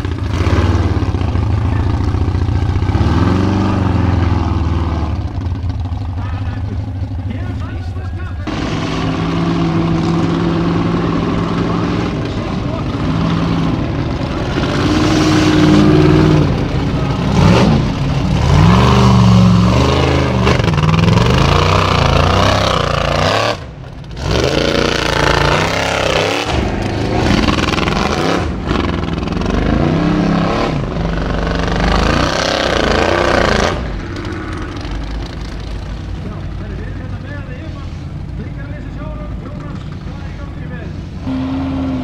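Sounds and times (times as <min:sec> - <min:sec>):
engine revving hard: 0:00.0 - 0:05.3, 0:08.2 - 0:34.0, 0:41.2 - 0:42.0.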